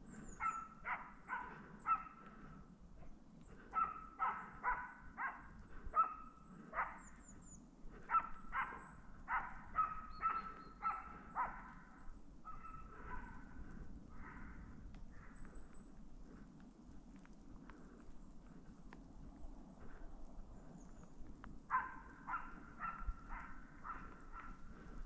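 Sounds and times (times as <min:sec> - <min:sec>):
dog barking: 0:00.4 - 0:02.4, 0:03.0 - 0:07.0, 0:08.1 - 0:11.9, 0:12.5 - 0:13.5, 0:21.7 - 0:24.6.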